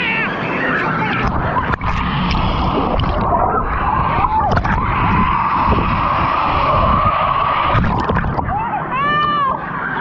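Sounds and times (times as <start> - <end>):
steady hum: 0.0 - 10.0
underwater rumble and bubbling: 1.2 - 8.7.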